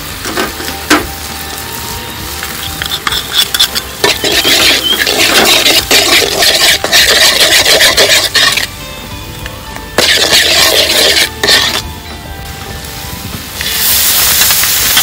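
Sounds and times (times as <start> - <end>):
metal ladle scraping a wok: 2.6 - 8.7, 10.0 - 11.9.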